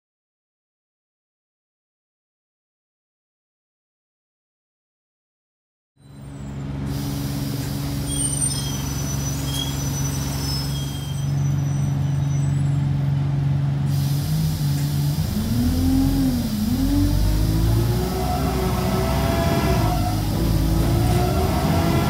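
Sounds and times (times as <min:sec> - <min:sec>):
diesel bus engine idling: 0:06.3 - 0:22.0
rising whine: 0:14.6 - 0:22.0.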